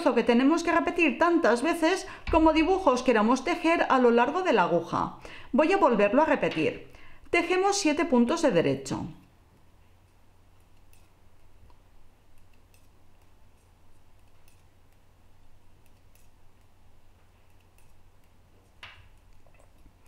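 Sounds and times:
low steady hum: 0.0 - 20.0
knitting needles clicking: 10.1 - 20.0.

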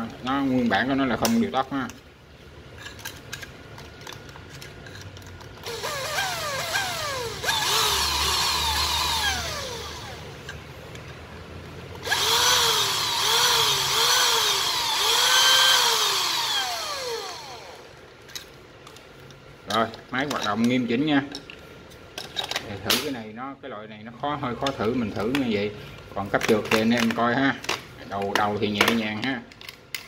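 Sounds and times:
cordless drill motor whining: 5.6 - 10.4, 12.0 - 18.0.

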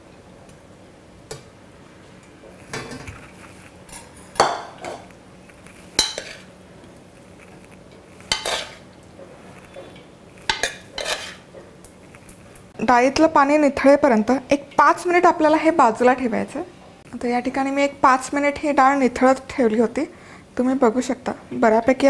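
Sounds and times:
metal pot clattering on strainer: 6.0 - 6.4.

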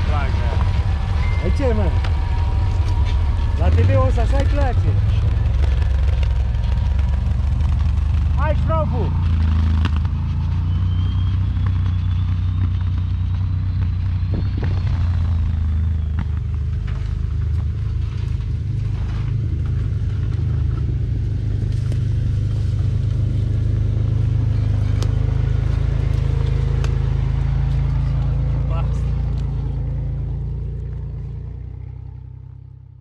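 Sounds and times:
off-road vehicle engine rumbling: 0.0 - 33.0.

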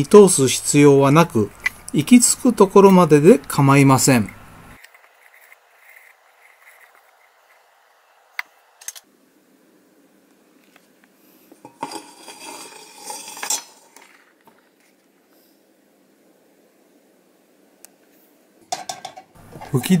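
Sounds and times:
metal scraping: 4.2 - 7.7, 11.6 - 14.8
metal can clinking and rattling: 11.7 - 14.3.

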